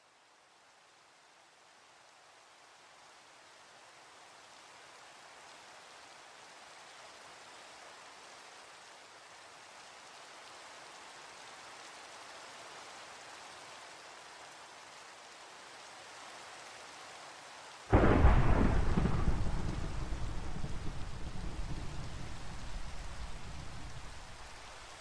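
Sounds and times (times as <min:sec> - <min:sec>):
faint rain: 0:00.0 - 0:25.0
loud thunderclap: 0:17.9 - 0:24.5.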